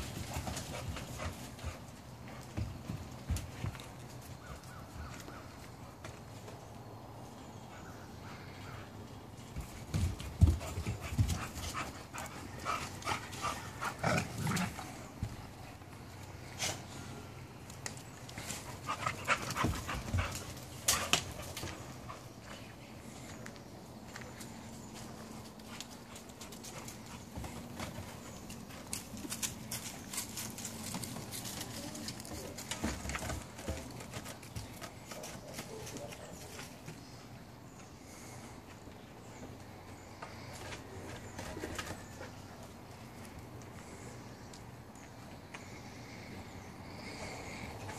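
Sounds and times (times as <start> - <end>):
puppy paws on gravelly dirt: 0.0 - 46.2
puppies scuffling: 17.6 - 37.4.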